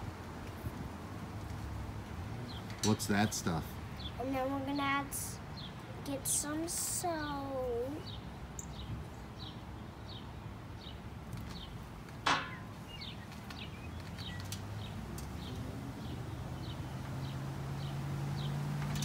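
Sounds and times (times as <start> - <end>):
bird chirping: 2.4 - 6.7, 7.9 - 18.6.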